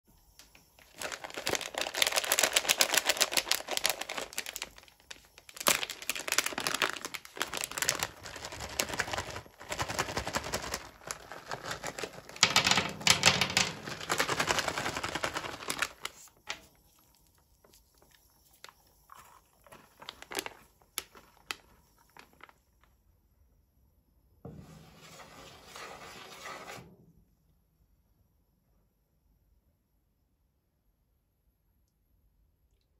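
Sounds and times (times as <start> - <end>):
plastic bag crinkling: 0.5 - 22.9
candy balls clicking on metal plate: 12.4 - 15.9
rustling scrape: 24.5 - 27.0.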